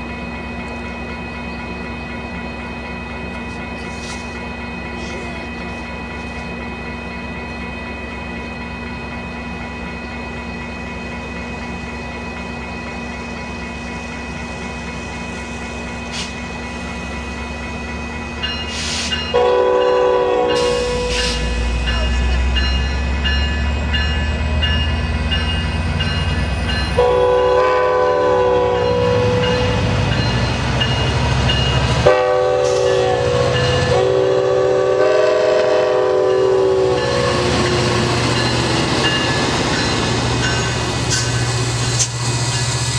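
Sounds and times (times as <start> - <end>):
low rumble of passing train: 0.0 - 42.9
bell ringing: 17.6 - 27.1
diesel locomotive horn blasts: 19.3 - 22.2, 26.9 - 29.8, 32.0 - 37.8.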